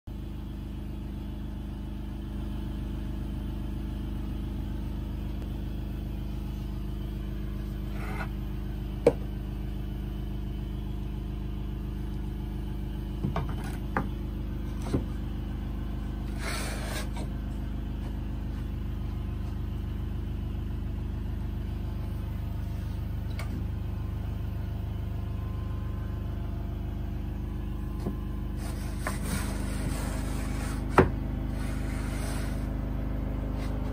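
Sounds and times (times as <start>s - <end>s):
low machine hum: 0.1s - 33.9s
wooden fence scraping on table: 7.9s - 8.3s, 16.3s - 17.3s, 28.6s - 32.7s.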